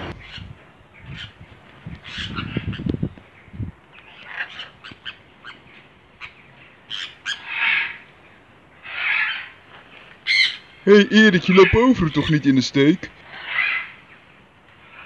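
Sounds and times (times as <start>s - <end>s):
macaw harsh squawk: 0.0s - 1.4s, 2.0s - 2.9s, 4.0s - 5.6s, 6.2s - 8.1s, 8.8s - 14.1s
macaws chirping and clicking: 0.0s - 8.2s, 8.8s - 12.3s, 13.1s - 15.0s.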